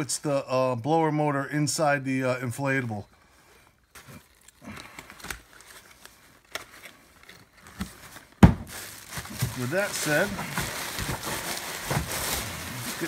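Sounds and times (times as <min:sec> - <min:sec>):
cardboard box rustling: 0:06.8 - 0:13.0.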